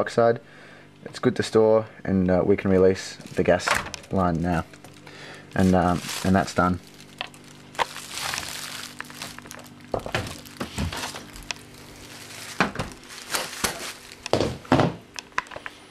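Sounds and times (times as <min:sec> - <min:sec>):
low steady hum: 0:00.0 - 0:15.9
plastic bag crinkling: 0:03.0 - 0:15.7
handling knocks and clicks: 0:12.4 - 0:15.8.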